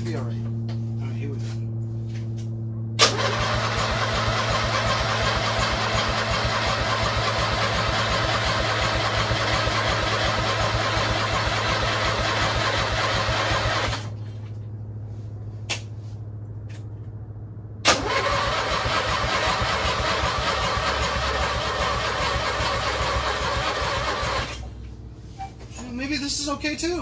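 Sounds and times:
low hum: 0:00.0 - 0:09.4, 0:13.2 - 0:18.7
small petrol engine running: 0:03.0 - 0:14.1, 0:17.9 - 0:24.7.

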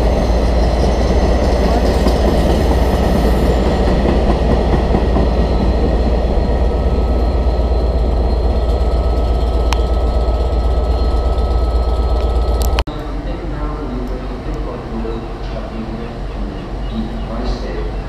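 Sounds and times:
train wheels on rails: 0:00.0 - 0:12.8.

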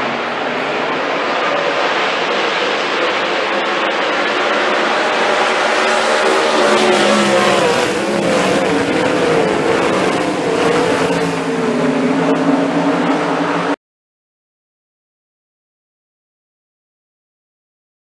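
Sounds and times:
race car engines passing: 0:00.0 - 0:13.8.

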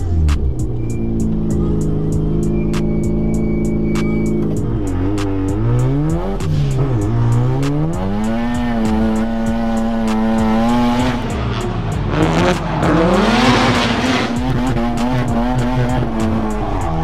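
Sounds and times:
rotary engine at high revs: 0:00.0 - 0:17.0
tyre squeal: 0:00.6 - 0:06.0.

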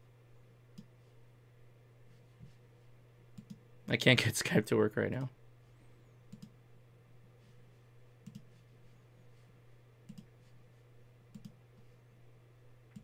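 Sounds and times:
steady low hum: 0:00.0 - 0:13.0
computer mouse clicks: 0:03.4 - 0:03.6, 0:06.3 - 0:06.6, 0:08.2 - 0:08.6, 0:10.0 - 0:10.3, 0:11.3 - 0:11.6.

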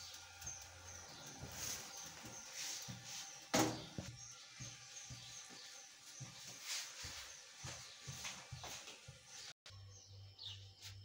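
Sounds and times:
footsteps on tiled floor: 0:01.2 - 0:09.6.

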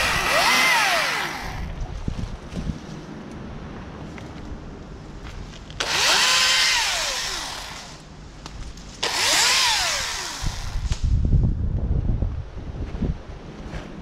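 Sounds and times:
battery chainsaw whining: 0:00.0 - 0:01.8, 0:05.8 - 0:08.0, 0:09.0 - 0:11.0.

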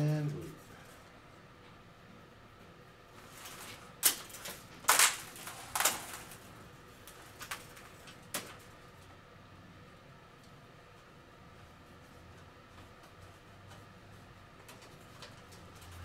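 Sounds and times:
electrical cord rustling: 0:03.1 - 0:09.2.

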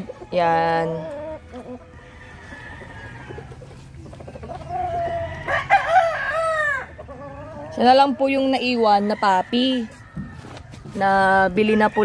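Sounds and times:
rooster crowing: 0:01.8 - 0:03.8, 0:04.6 - 0:08.2.

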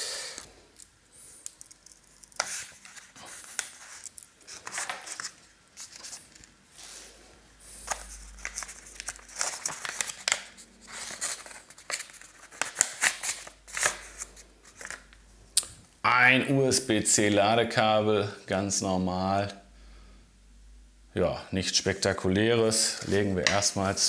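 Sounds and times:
wrapper crinkling and tearing: 0:00.8 - 0:06.6, 0:07.8 - 0:15.2.

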